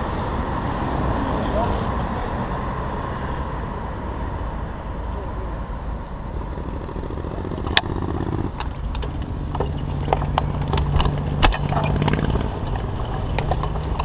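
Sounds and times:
road and wind rumble: 0.0 - 14.0
bicycle rattling over asphalt: 6.3 - 14.0.

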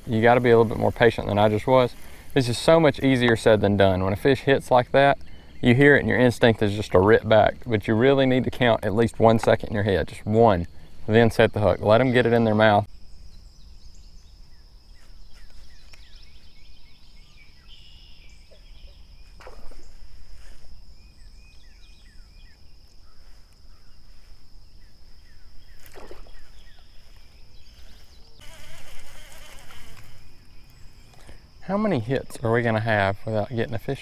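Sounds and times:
high insect drone: 0.1 - 34.0
bird chirps: 10.8 - 29.5.

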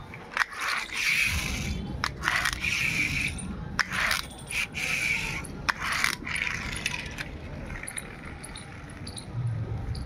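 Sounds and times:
toy car wheels whirring: 0.0 - 10.0.

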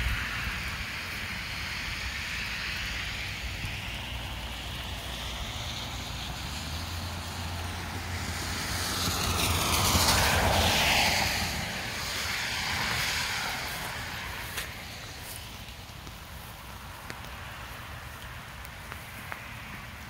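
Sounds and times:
vehicle passing: 0.0 - 20.0
steady hiss: 9.1 - 20.0.

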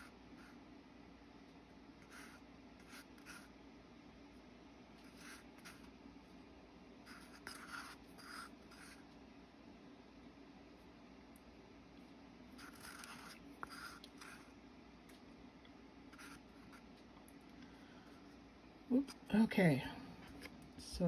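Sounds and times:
wooden stick scraping paper cup: 12.6 - 14.4.

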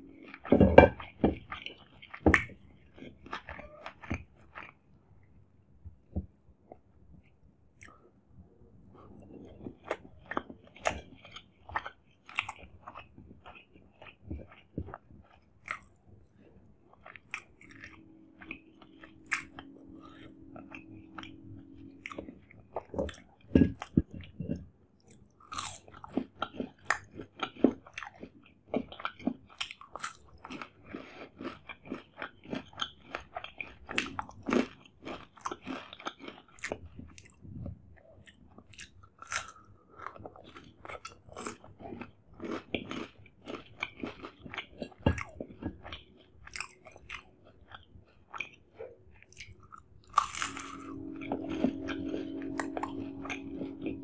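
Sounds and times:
crunching and wet chewing: 0.0 - 5.3, 9.0 - 54.0
steady low hum: 14.1 - 25.7, 48.8 - 54.0.

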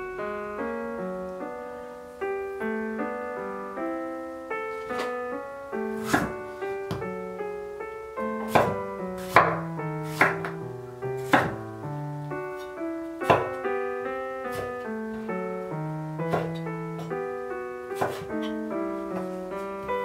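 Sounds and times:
soft piano music: 0.0 - 20.0
knife knocking on cutting board: 8.5 - 10.6, 11.3 - 11.6, 13.3 - 13.6, 16.3 - 17.1, 18.0 - 18.3.

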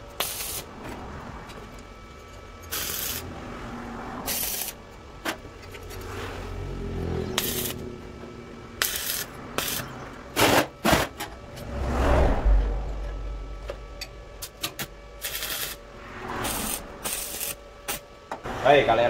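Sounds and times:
arc welder crackling: 0.0 - 3.6, 4.2 - 10.8, 14.3 - 18.2.

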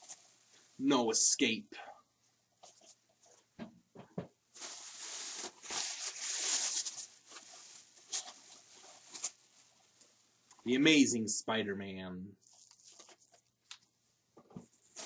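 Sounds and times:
plastic bag crinkling: 4.5 - 9.9, 12.4 - 13.8, 14.8 - 15.0.

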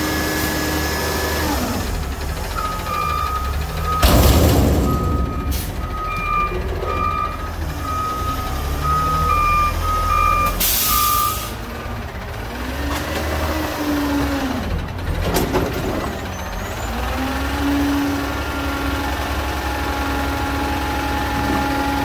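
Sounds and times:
diesel engine rumble: 0.0 - 22.0
reverse alarm beeping: 2.5 - 11.5
air brakes hissing: 5.2 - 6.0, 10.4 - 11.6.

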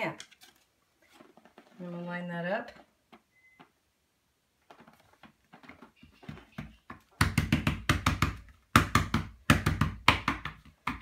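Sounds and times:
hands patting template on wall: 5.2 - 11.0.

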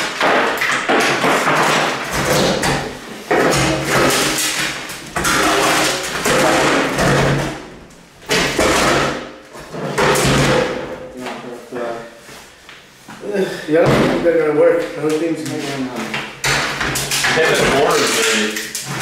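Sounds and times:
metal safe scraping on floor: 1.4 - 7.6.

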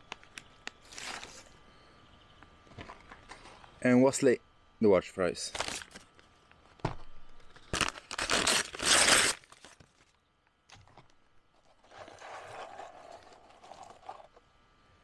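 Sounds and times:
paper bag rustling: 0.8 - 1.6, 7.4 - 10.1.

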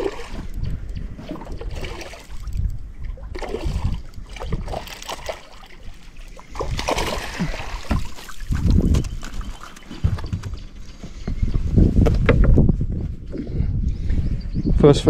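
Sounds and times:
water splashing: 0.0 - 0.5, 1.2 - 10.5
knocks against boat: 7.8 - 9.0, 12.0 - 12.7.

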